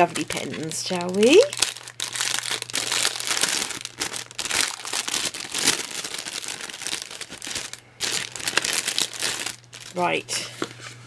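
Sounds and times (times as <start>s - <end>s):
cellophane bag crinkling: 0.0s - 10.8s.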